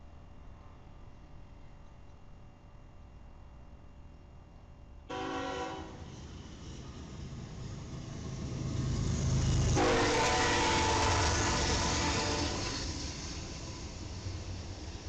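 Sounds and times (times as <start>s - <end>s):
locomotive air horn chord: 5.1s - 6.1s, 9.8s - 12.7s
diesel locomotive engine rumble: 5.1s - 15.0s.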